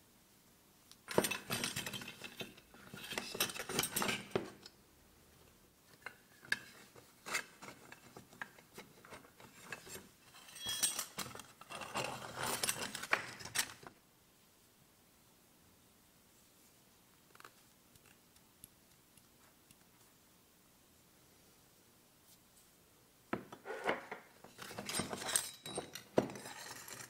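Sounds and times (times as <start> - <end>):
metal parts clinking and scraping: 1.1 - 4.6, 9.4 - 13.8, 24.5 - 27.0.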